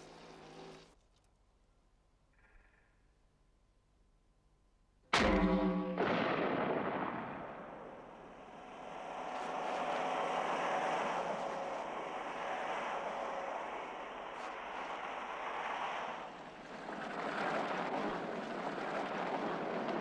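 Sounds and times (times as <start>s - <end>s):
shotgun blast: 5.1s - 9.4s
steady rushing noise: 5.2s - 20.0s.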